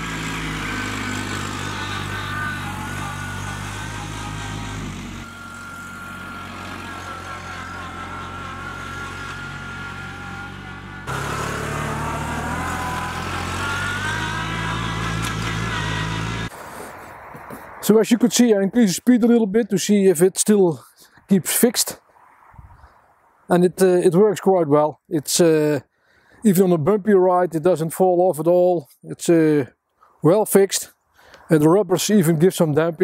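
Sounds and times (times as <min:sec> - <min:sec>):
tractor diesel engine: 0:00.0 - 0:21.7.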